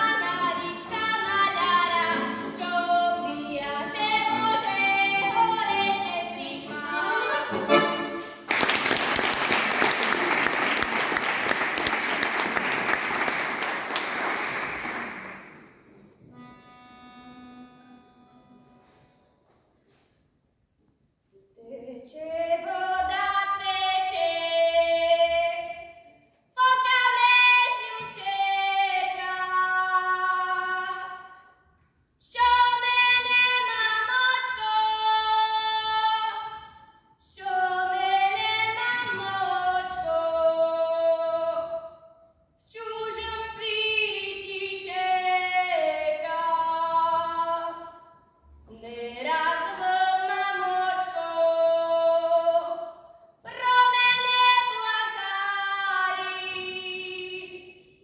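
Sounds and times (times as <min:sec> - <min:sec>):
girl singing unaccompanied: 0:26.6 - 0:31.2, 0:32.2 - 0:36.5.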